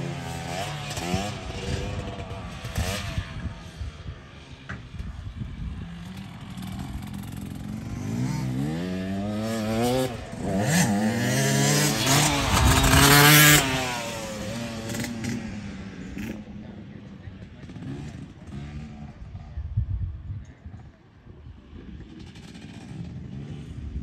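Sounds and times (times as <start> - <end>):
dirt bike engine revving: 0.0 - 4.0, 5.8 - 16.5.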